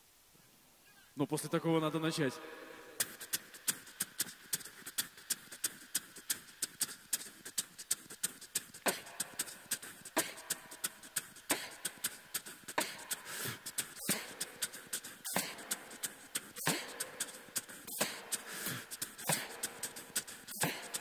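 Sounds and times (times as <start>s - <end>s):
beatboxing hi-hat ticks: 3.0s - 21.0s
beatboxed falling bass sweep: 8.8s - 9.4s, 15.3s - 17.3s.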